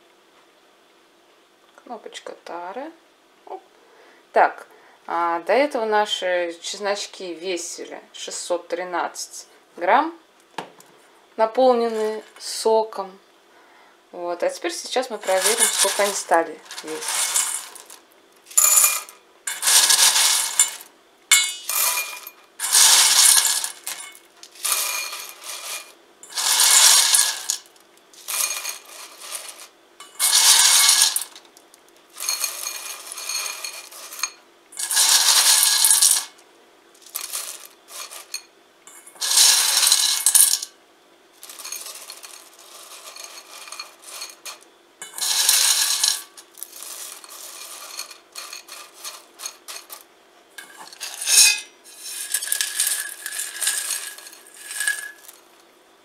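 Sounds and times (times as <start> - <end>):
dried garlic slices rattling: 15.1 - 31.4, 37.0 - 38.4, 41.4 - 50.0, 50.6 - 55.4.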